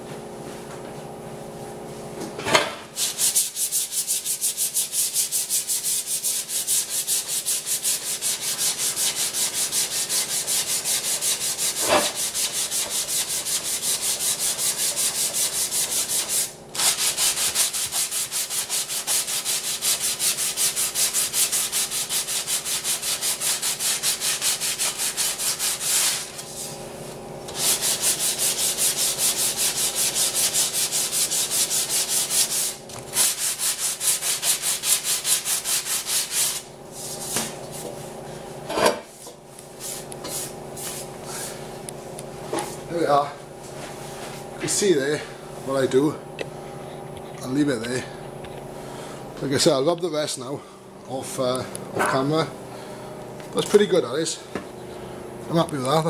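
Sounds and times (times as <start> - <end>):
sandpaper rubbing by hand: 3.0 - 26.8, 27.5 - 37.9, 39.8 - 41.5.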